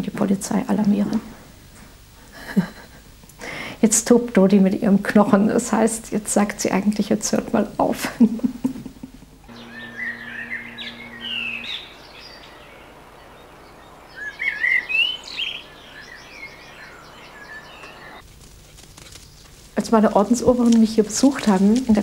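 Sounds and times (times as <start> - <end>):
low steady hum: 0.0 - 22.0
songbirds singing and chirping: 9.5 - 18.2, 18.9 - 22.0.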